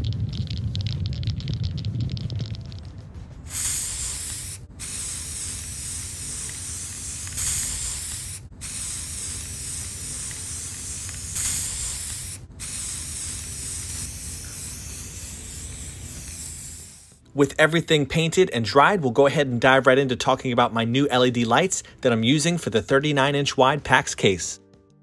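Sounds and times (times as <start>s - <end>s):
aerosol spray can hissing: 3.4s - 17.2s.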